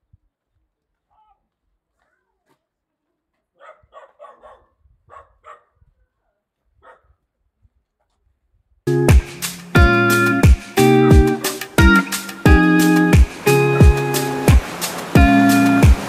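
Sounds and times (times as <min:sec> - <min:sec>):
dog barking faintly: 0:01.1 - 0:07.3.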